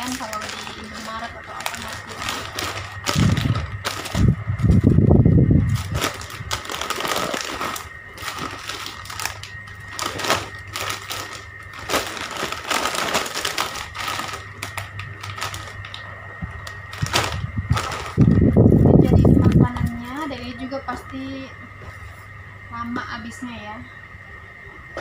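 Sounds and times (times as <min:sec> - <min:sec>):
plastic snack packets crinkling: 0:00.0 - 0:04.9, 0:05.6 - 0:16.0, 0:16.6 - 0:18.5
faint steady hum: 0:00.0 - 0:25.0.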